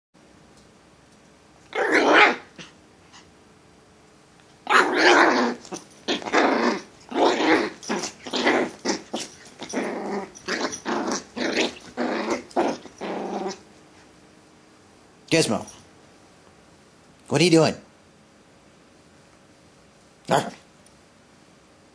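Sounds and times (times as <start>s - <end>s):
puppy play-growling: 1.6s - 3.3s, 4.6s - 14.1s, 20.2s - 20.7s.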